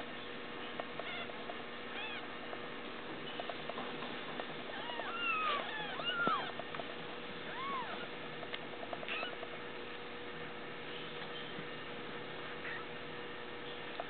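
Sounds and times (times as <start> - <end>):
kittens squeaking: 1.0 - 2.4, 4.7 - 6.7, 7.4 - 8.2, 9.0 - 9.5.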